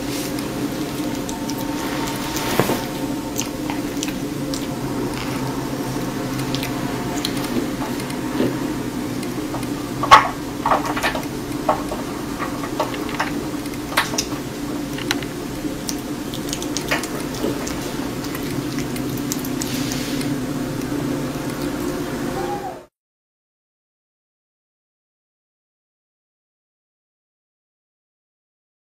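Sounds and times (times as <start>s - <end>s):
kitten chewing watermelon: 0.0s - 22.1s
low background hum: 0.0s - 22.9s.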